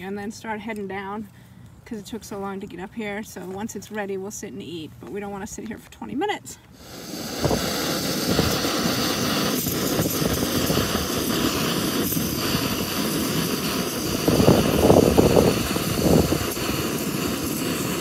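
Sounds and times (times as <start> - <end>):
wind buffeting microphone: 7.1 - 18.0.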